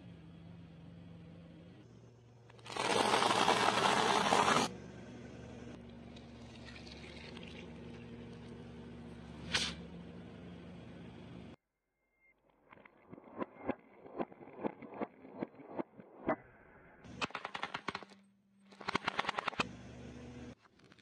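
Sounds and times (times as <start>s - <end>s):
low engine hum: 4.7s - 11.6s.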